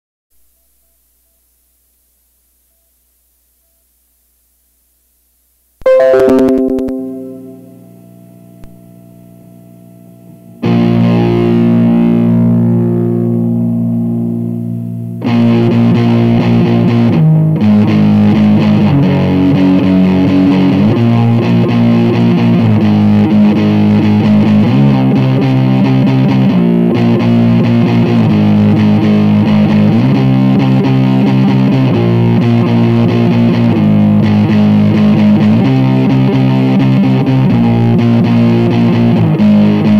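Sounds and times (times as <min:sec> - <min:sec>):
distorted electric guitar: 0:05.9 - 0:07.8, 0:10.6 - 0:36.1.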